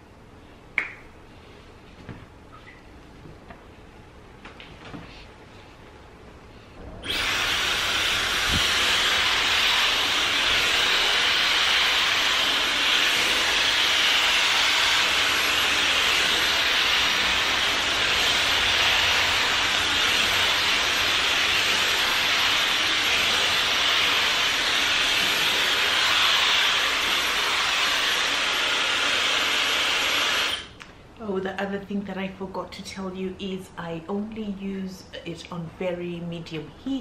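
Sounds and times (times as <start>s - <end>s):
hair dryer blowing: 7.0s - 30.8s.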